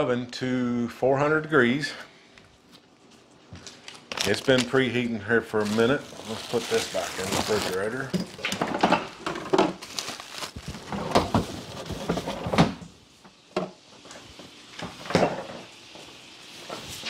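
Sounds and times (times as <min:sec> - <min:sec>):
items knocking inside fridge: 0:08.0 - 0:12.8.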